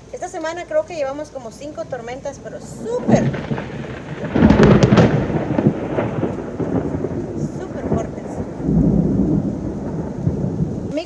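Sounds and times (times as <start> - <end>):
steady rain: 0.0 - 11.0
thunder rolling: 0.6 - 11.0.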